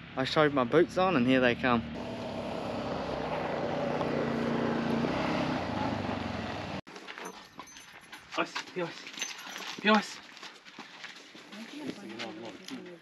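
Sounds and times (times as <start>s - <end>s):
utility vehicle engine on gravel: 1.2s - 6.8s.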